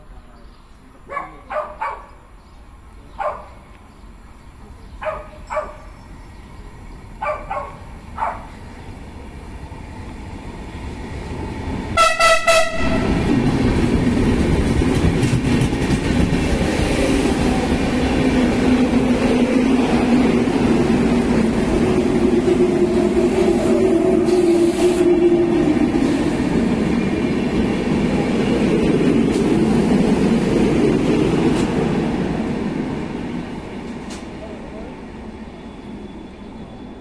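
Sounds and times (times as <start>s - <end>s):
dog barking: 1.1s - 2.2s, 3.2s - 3.6s, 5.0s - 5.9s, 7.2s - 8.6s
train rumbling: 1.5s - 37.0s
train horn blast: 12.0s - 13.3s.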